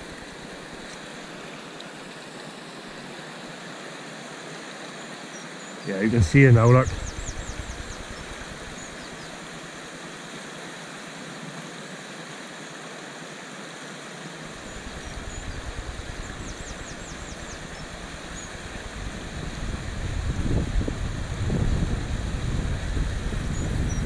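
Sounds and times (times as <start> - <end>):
low rumble: 6.1 - 8.9, 14.5 - 21.5.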